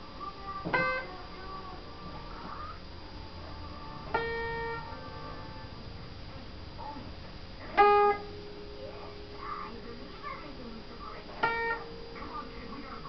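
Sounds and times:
single instrument notes: 7.7s - 9.6s.

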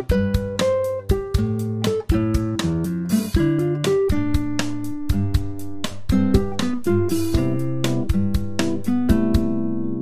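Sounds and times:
plucked guitar notes: 0.0s - 10.0s
low bass line: 3.4s - 10.0s.

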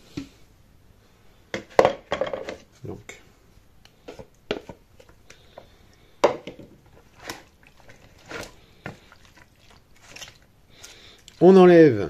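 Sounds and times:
wet squelches of meat: 7.0s - 11.5s.

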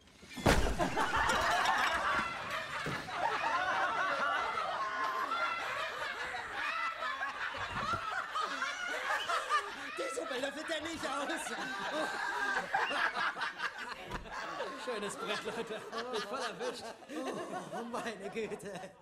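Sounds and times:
loud crash: 0.3s - 2.2s
men laughing: 0.6s - 19.0s.

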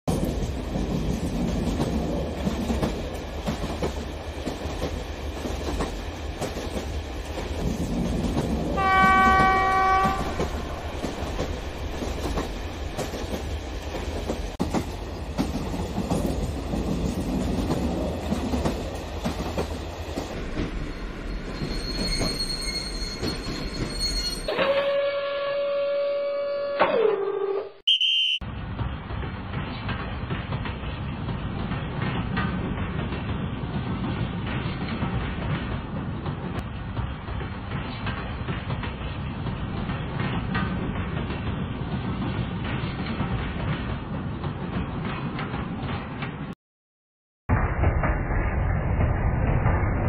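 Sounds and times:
train horn: 8.8s - 10.9s, 24.5s - 26.8s
faint high whistle tone: 27.8s - 28.4s.

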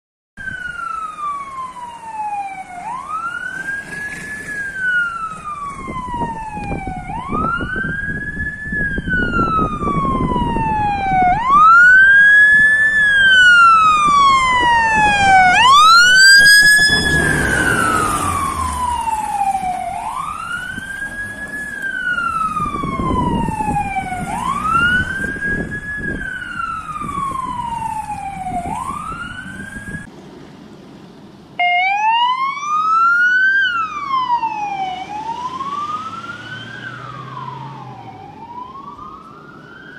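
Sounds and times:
fire engine siren wailing: 0.4s - 30.1s, 31.6s - 39.9s.

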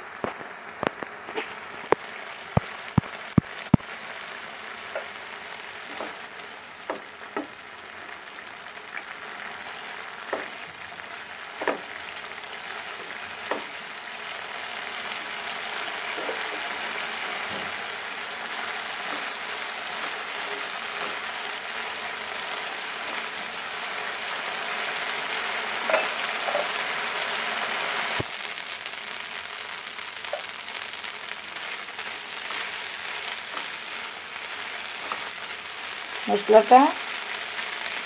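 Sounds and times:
paste sizzling in hot oil: 0.0s - 38.0s
spatula scraping and tapping pan: 4.9s - 5.2s, 5.8s - 7.6s, 10.2s - 10.6s, 11.6s - 12.0s, 12.9s - 13.8s, 16.1s - 16.7s, 19.0s - 21.3s, 25.8s - 26.8s, 35.0s - 35.4s.

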